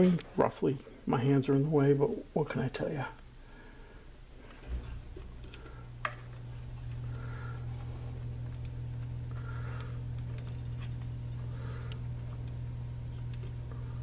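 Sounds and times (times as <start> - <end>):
steady low hum: 0.0 - 14.0
clicks of wires being handled: 8.1 - 13.8.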